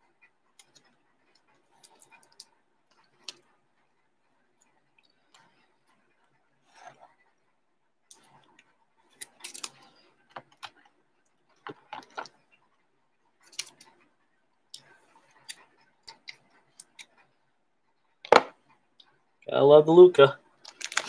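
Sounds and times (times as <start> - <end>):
cards and plastic holders handled: 11.7 - 12.4, 20.7 - 21.0.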